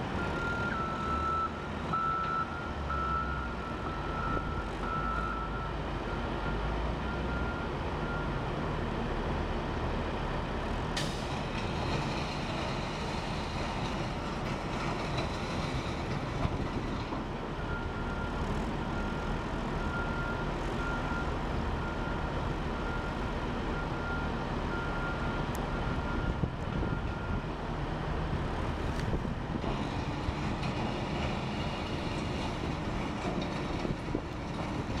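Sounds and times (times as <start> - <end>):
diesel engine running under load: 0.0 - 35.0
reversing alarm beeping: 0.2 - 8.4.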